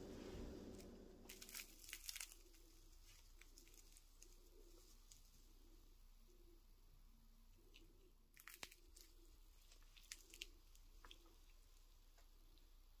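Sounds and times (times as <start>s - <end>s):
crisp pastry crunching: 0.7s - 5.3s, 7.6s - 12.6s.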